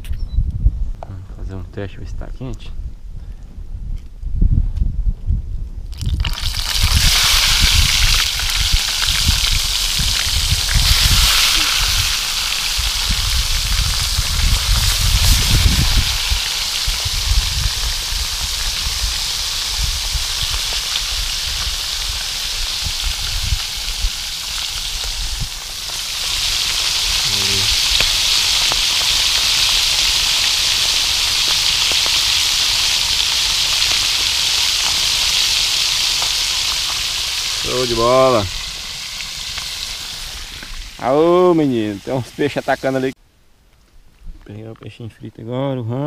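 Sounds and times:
fish sizzling in oil: 5.9 - 43.2.

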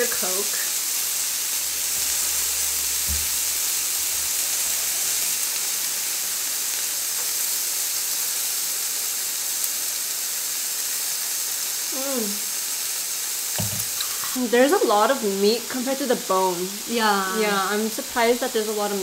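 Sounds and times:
meat sizzling on a grill: 0.0 - 19.0.

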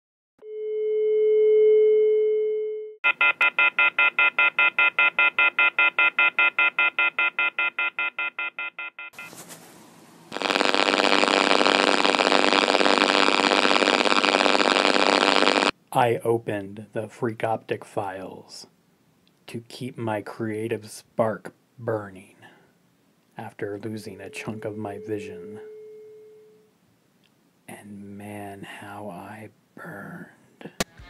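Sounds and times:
steady humming tone: 10.2 - 15.7.

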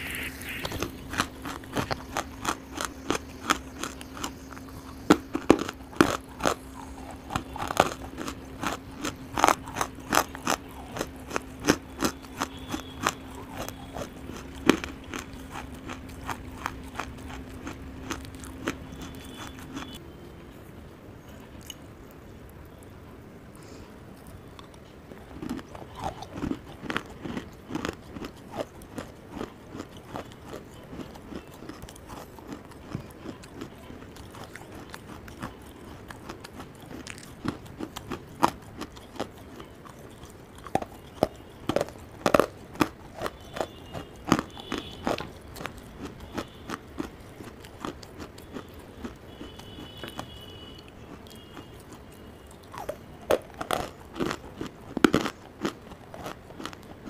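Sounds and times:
chewing hard clay crunches: 0.0 - 20.0, 23.6 - 57.0
mouth clicks: 0.0 - 20.0.

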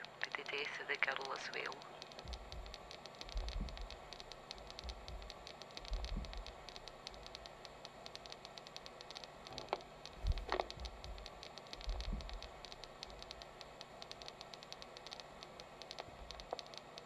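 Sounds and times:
static hiss and crackle: 0.0 - 17.0
low rumbles: 2.0 - 7.2, 9.6 - 13.2.

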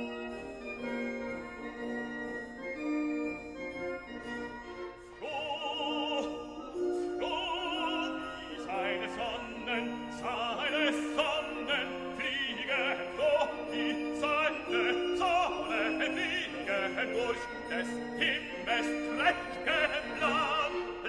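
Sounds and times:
operatic singing with orchestra: 5.0 - 21.0.

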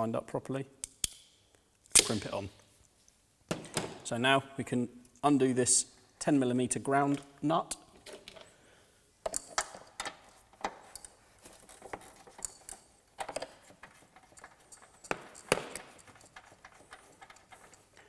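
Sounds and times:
hand tools clicking and tapping: 9.2 - 18.0.

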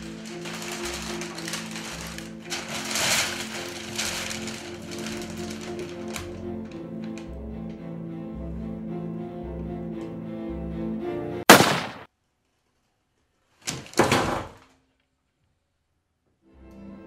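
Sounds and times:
bowed string music: 0.0 - 11.4, 16.4 - 17.0.

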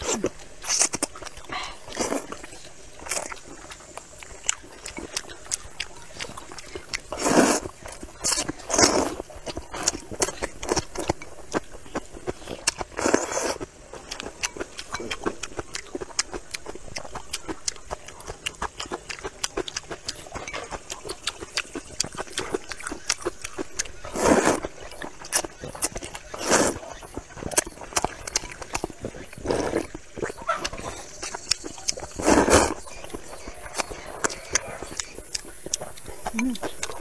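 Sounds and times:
noodle slurps: 0.0 - 2.5, 6.2 - 11.2, 12.9 - 13.7, 24.0 - 24.7, 25.3 - 32.8
wet chewing and lip smacks: 0.0 - 37.0.

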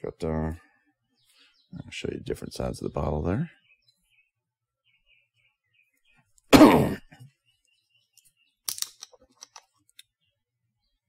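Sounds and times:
man clearing his throat: 6.5 - 7.3.

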